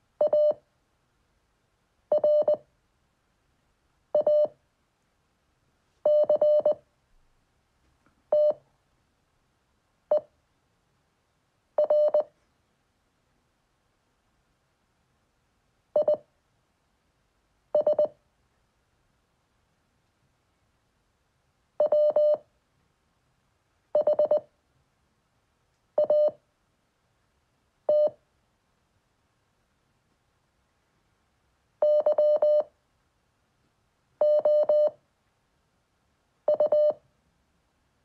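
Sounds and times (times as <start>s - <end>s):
morse code beeps: 2.2s - 2.6s, 4.2s - 4.5s, 6.1s - 6.8s, 8.4s - 8.6s, 11.8s - 12.3s, 21.8s - 22.4s, 26.0s - 26.4s, 31.8s - 32.7s, 34.2s - 35.0s, 36.5s - 37.0s.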